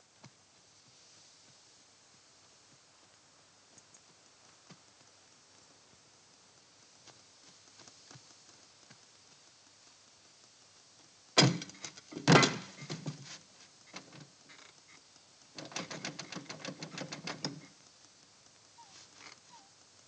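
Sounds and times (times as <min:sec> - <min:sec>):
light clicks and scrapes: 0:11.7 - 0:19.7.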